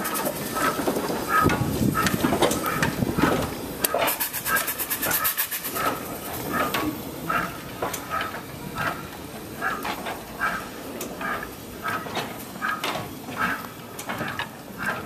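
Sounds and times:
steam locomotive chuffing: 0.0s - 15.0s.

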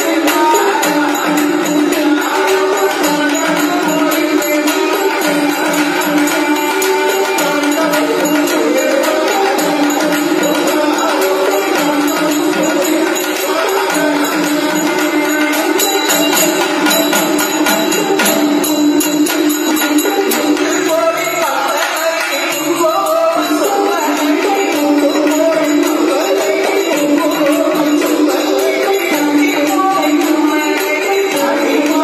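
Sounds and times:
wavering wind instrument melody: 0.0s - 21.2s
small hand cymbals clashing: 0.0s - 32.0s.

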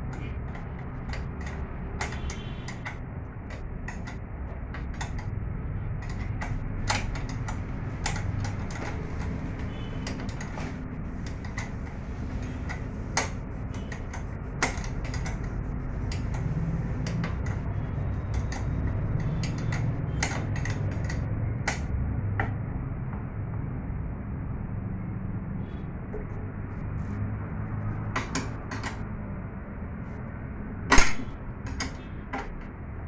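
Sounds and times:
steady low rumble: 0.0s - 31.7s
metal spanner clinking on bolts: 11.2s - 21.9s.

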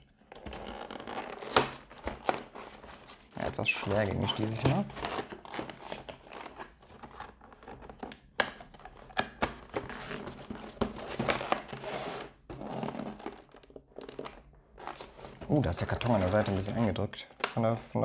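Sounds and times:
cardboard scraping and rubbing: 0.4s - 7.7s, 9.8s - 13.7s, 14.8s - 17.0s.

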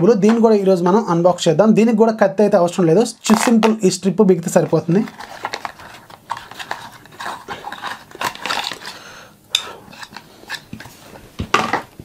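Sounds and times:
rustling and scraping: 4.5s - 9.0s, 9.9s - 12.0s.

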